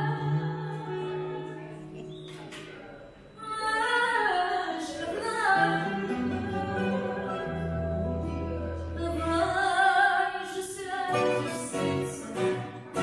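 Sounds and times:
woman singing: 0.0 - 1.7, 3.4 - 13.0
guitars playing: 5.0 - 10.0, 10.8 - 13.0.

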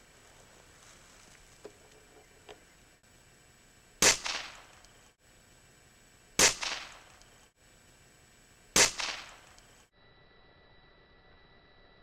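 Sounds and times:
air rifle shots: 4.0 - 4.8, 6.4 - 7.2, 8.8 - 9.6.

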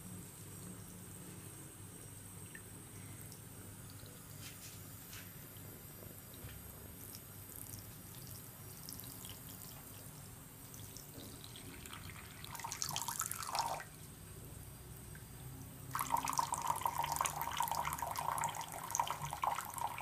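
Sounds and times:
tap water running into sink: 15.9 - 20.0.

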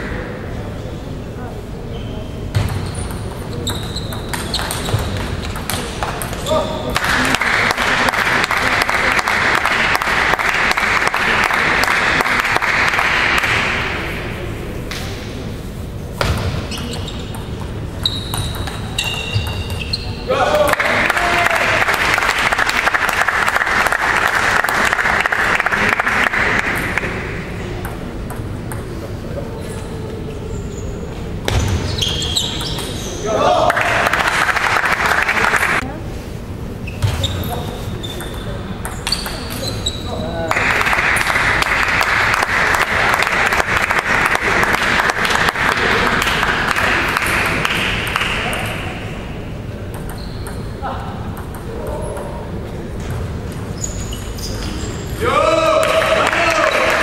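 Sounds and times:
murmur of hall: 0.0 - 57.0
people applauding: 6.9 - 13.8, 20.6 - 27.1, 33.6 - 35.8, 40.5 - 48.6, 55.7 - 57.0
spectators clapping: 6.9 - 14.0, 20.6 - 27.2, 33.6 - 35.8, 40.4 - 48.7, 55.7 - 57.0.

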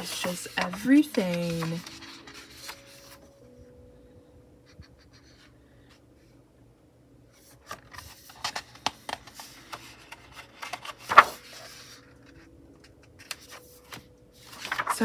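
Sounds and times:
pages rustling: 0.0 - 3.4, 7.4 - 15.0.

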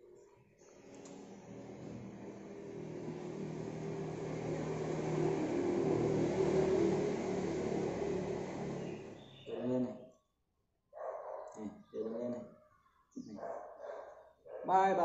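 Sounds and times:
vehicle engine humming: 0.7 - 9.8.

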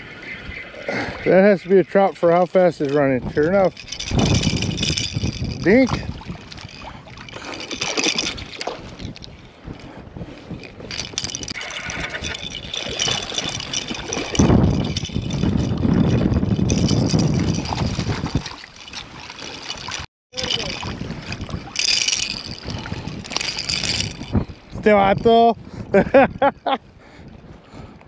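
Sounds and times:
low rumbling on microphone: 8.9 - 18.5.

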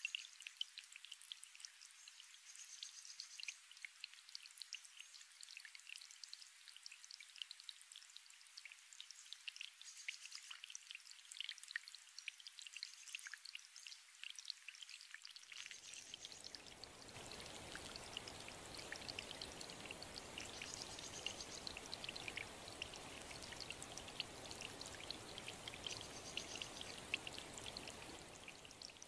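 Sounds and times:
running water splashing: 15.6 - 29.0.

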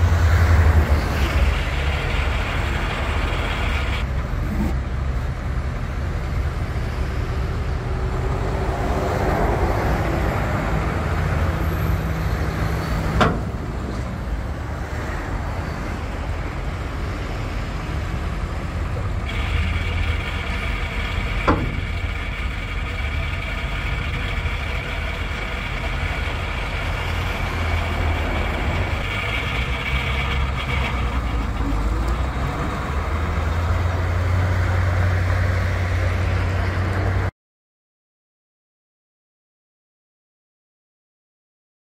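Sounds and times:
truck engine running: 0.0 - 37.3
hydraulic hoist: 19.2 - 33.0.

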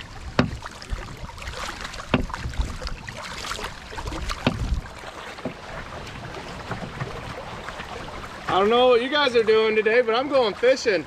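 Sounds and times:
river water: 0.0 - 11.0
knocks against kayak hull: 0.3 - 1.0, 2.0 - 2.8, 4.0 - 4.8.

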